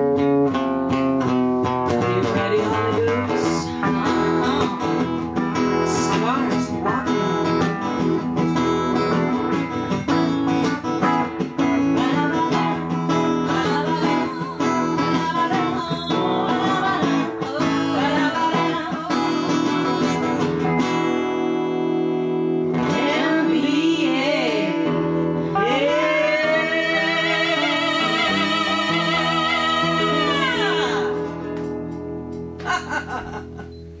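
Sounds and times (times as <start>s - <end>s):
strummed acoustic guitars: 0.0s - 34.0s
women singing: 2.0s - 3.8s, 5.8s - 7.2s, 11.7s - 20.6s, 22.8s - 31.5s.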